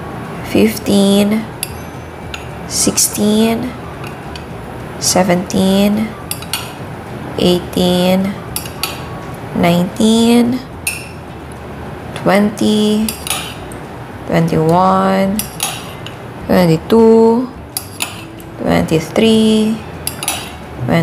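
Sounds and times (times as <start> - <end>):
metal spoon clinking on dishes: 1.6 - 2.6, 6.3 - 6.8, 8.5 - 9.1, 10.8 - 11.2, 13.0 - 13.7, 15.4 - 16.2, 17.7 - 18.4, 20.0 - 20.6.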